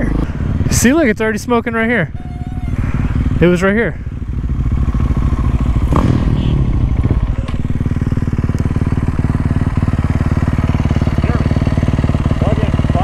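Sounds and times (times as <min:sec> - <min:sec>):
dirt bike engine running: 0:00.0 - 0:13.0.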